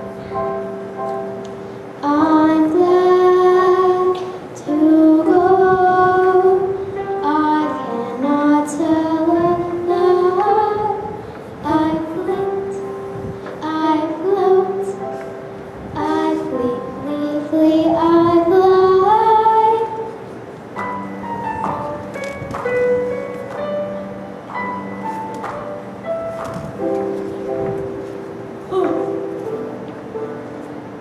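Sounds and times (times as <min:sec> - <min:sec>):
electronic keyboard chords: 0:00.0 - 0:31.0
girl singing: 0:02.0 - 0:20.2, 0:28.6 - 0:29.9.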